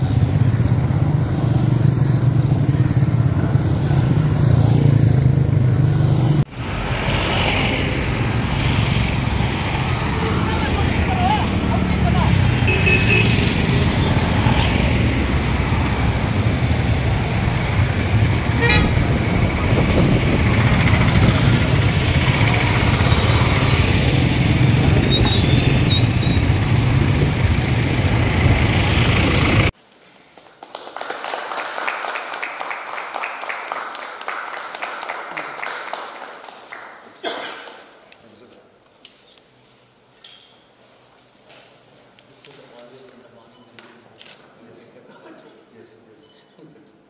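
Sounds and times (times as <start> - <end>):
traffic engines rumbling: 0.0 - 29.8
vehicle horn toots: 12.6 - 13.5, 18.6 - 19.0.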